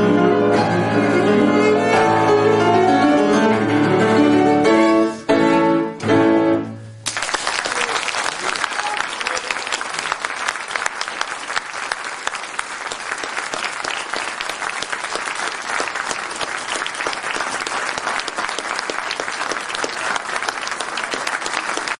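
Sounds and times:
audience applauding: 7.0 - 22.0.

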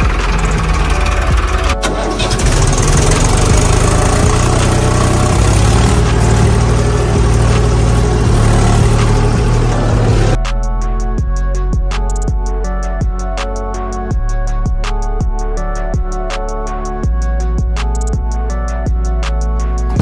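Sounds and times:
vehicle engine running: 0.0 - 10.5, 17.0 - 20.0
music with plucked notes and beat: 0.0 - 20.0.

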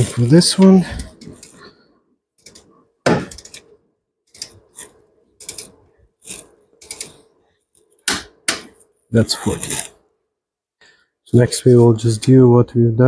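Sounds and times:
torque wrench ratchet clicking: 5.4 - 7.1.

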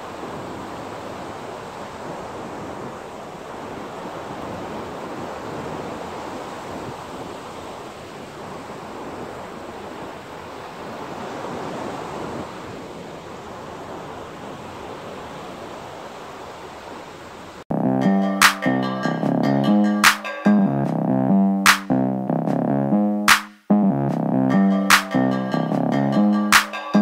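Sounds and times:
wind buffeting the microphone: 0.0 - 17.0
surf breaking on a beach: 0.0 - 17.6.

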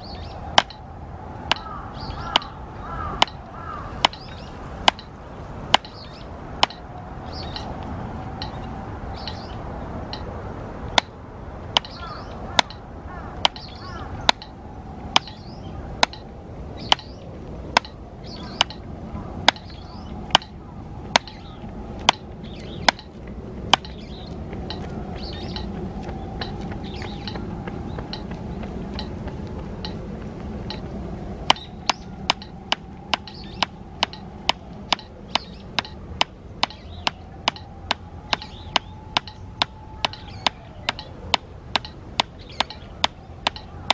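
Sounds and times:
drumsticks striking practice pad: 0.5 - 0.8, 1.4 - 6.9, 10.9 - 12.8, 13.4 - 24.1, 30.6 - 43.9.

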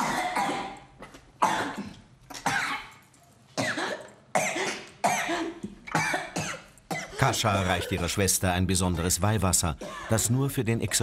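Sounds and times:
woman coughing cries: 0.0 - 0.8, 1.4 - 3.0, 3.6 - 8.4, 9.8 - 11.0.

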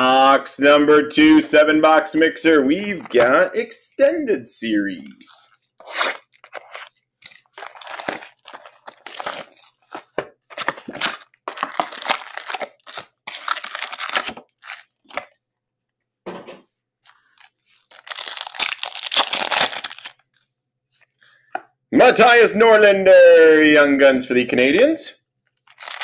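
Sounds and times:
foil packs crinkling: 5.8 - 15.3, 17.1 - 20.3, 25.6 - 26.0
plastic wrap tearing: 5.8 - 15.3, 17.1 - 20.4, 25.6 - 26.0.

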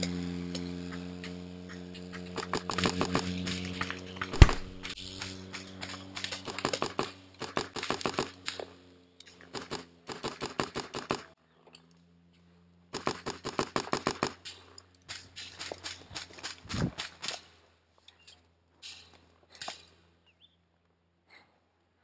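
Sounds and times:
paintball marker firing: 0.0 - 11.3, 12.9 - 14.5
low steady hum: 0.0 - 22.0.

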